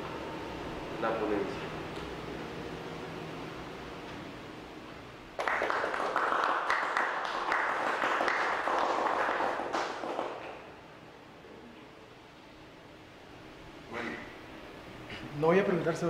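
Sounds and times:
audience applauding: 0:05.4 - 0:10.7.

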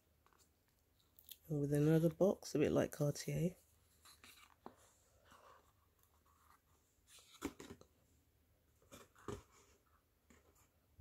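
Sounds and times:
cardboard box opened: 0:03.9 - 0:07.9.

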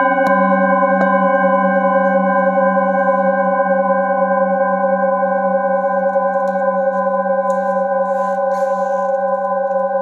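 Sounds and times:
metal singing bowls ringing: 0:00.0 - 0:10.0.

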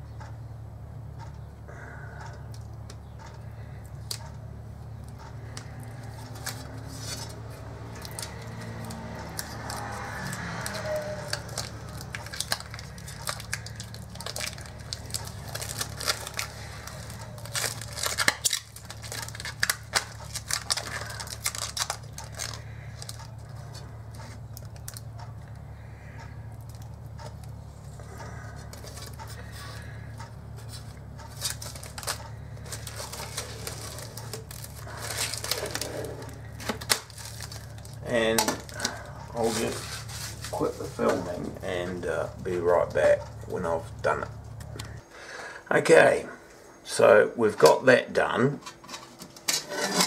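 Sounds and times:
steady low hum: 0:00.0 - 0:50.0
plastic film peeling crackling: 0:03.6 - 0:04.4, 0:05.0 - 0:43.3.

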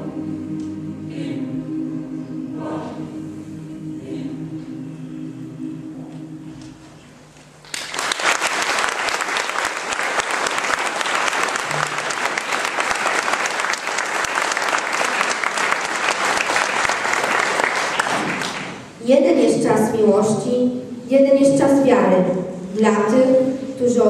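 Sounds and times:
audience applauding: 0:07.6 - 0:18.8.

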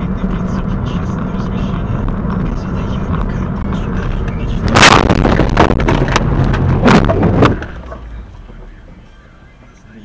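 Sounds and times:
engine and road noise: 0:00.0 - 0:10.0
vehicle crash: 0:03.8 - 0:08.9
bangs and crunches: 0:04.6 - 0:07.8.

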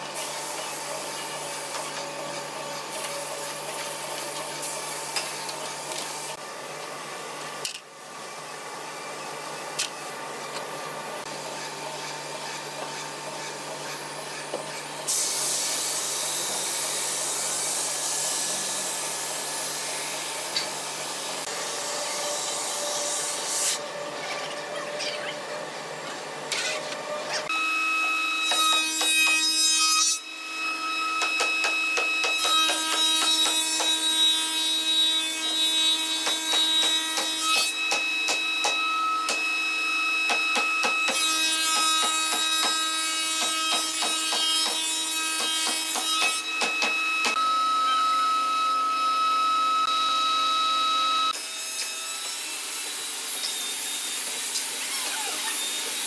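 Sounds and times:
handheld belt sander: 0:09.1 - 0:24.5, 0:31.1 - 0:56.0.

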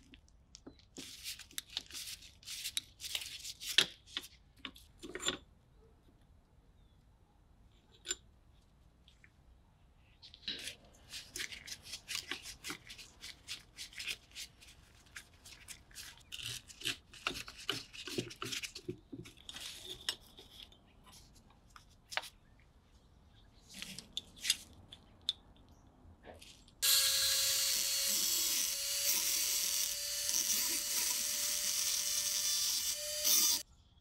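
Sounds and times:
screwdriver scraping metal screw: 0:26.8 - 0:33.6.

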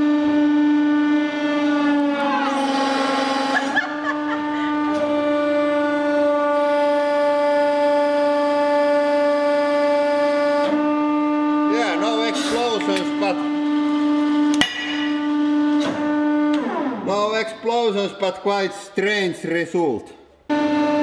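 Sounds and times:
hydraulic press pump whining: 0:00.0 - 0:17.9.

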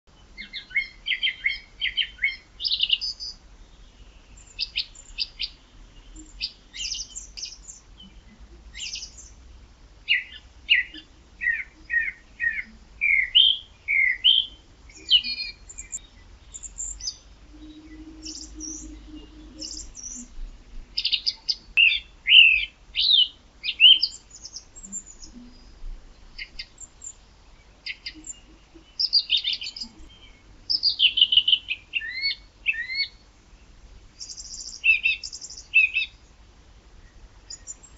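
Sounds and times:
songbirds chirping and trilling: 0:00.1 - 0:37.9.

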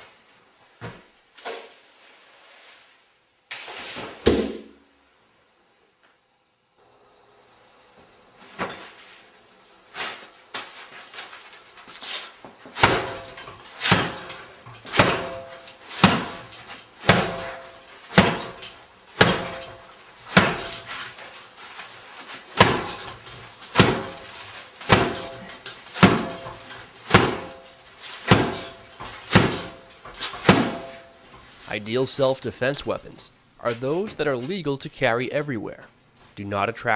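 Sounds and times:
umbrella striking punching bag: 0:12.8 - 0:18.6, 0:19.2 - 0:20.9, 0:22.6 - 0:27.6, 0:28.2 - 0:31.1.

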